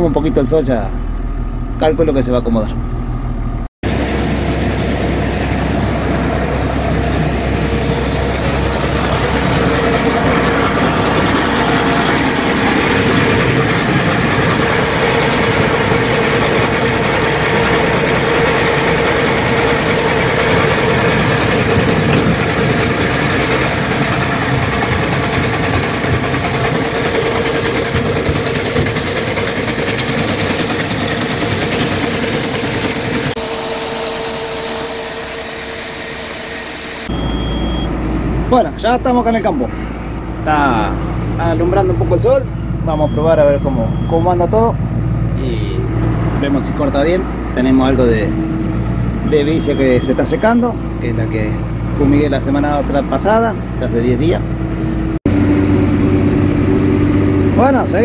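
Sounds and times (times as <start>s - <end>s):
constant tone: 0.0s - 58.0s
tractor engine running: 0.0s - 58.0s.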